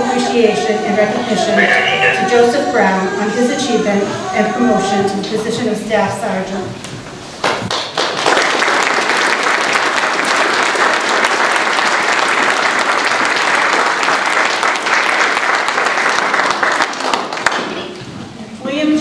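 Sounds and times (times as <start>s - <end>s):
audience applauding: 7.7s - 18.0s.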